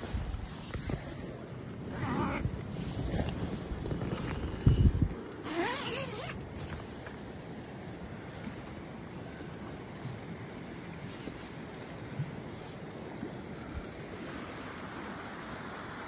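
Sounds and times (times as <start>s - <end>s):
tent fabric rustling: 0.0s - 4.8s, 5.4s - 7.0s
tent door zipper opening: 1.8s - 4.7s, 5.4s - 6.8s.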